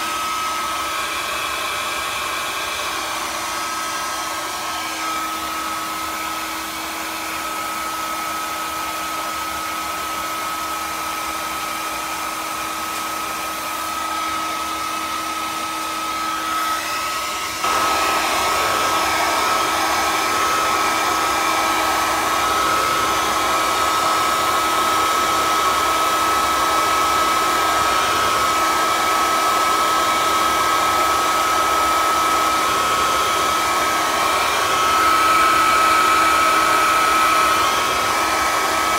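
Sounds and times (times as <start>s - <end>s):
small electric motor whining: 11.2s - 38.9s.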